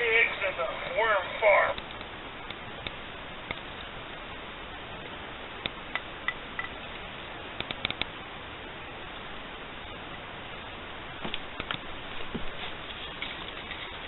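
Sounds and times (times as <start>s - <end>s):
steady background hiss: 0.0s - 14.0s
small sharp clicks: 7.6s - 8.1s.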